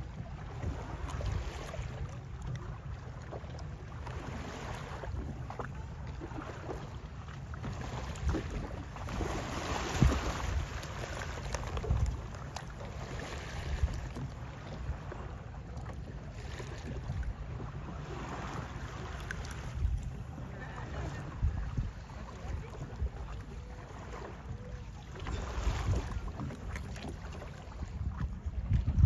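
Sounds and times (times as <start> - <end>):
wind buffeting microphone: 7.9 - 12.4, 19.5 - 29.0.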